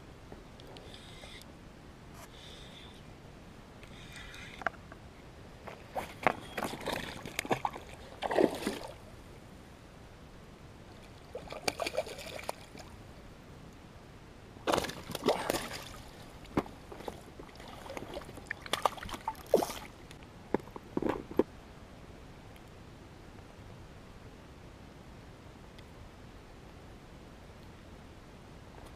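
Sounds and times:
fish splashing in water: 0:11.3 - 0:12.9, 0:14.7 - 0:16.3, 0:17.0 - 0:20.0.

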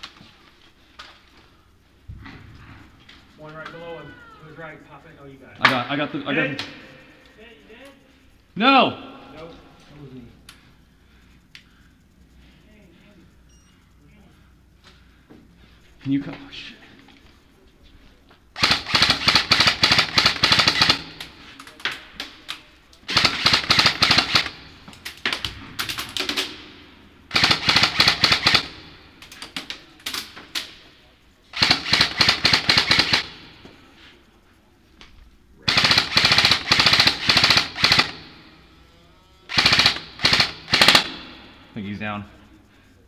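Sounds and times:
airsoft rifle firing bursts: 0:18.6 - 0:21.3, 0:23.1 - 0:25.5, 0:27.3 - 0:28.9, 0:31.5 - 0:33.5, 0:35.7 - 0:38.4, 0:39.5 - 0:41.4.

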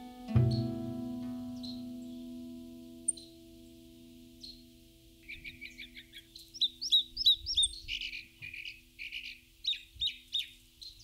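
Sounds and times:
soft background music tone: 0:00.0 - 0:07.8
songbird chirping: 0:00.0 - 0:11.0.

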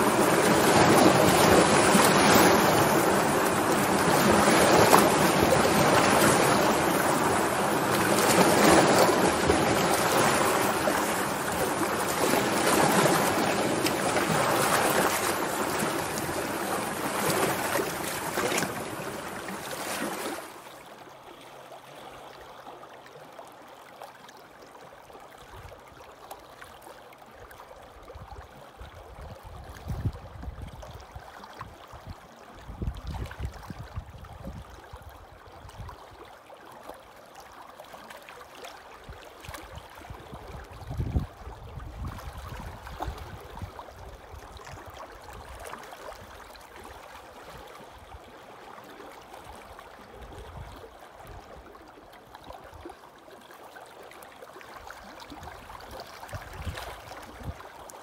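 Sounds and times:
small waves lapping on rocks: 0:00.0 - 0:20.9, 0:35.7 - 0:58.0.

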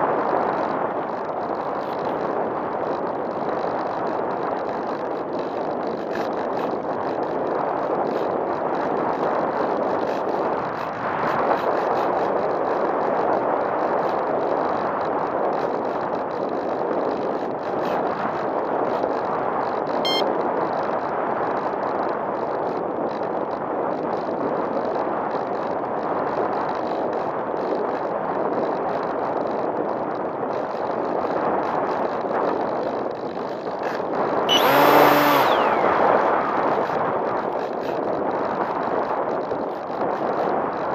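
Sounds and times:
wind rushing over camera: 0:00.0 - 0:40.9
electric motor humming: 0:34.5 - 0:36.3.

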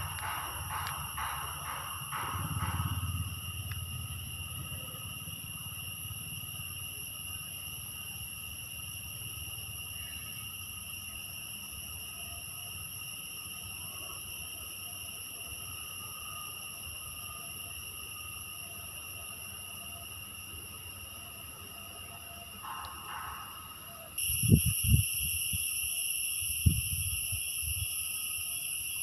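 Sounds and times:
insects droning: 0:00.0 - 0:29.0.

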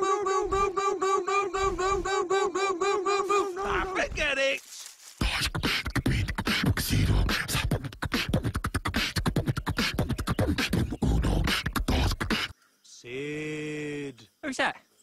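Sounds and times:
person beatboxing: 0:05.2 - 0:12.5.

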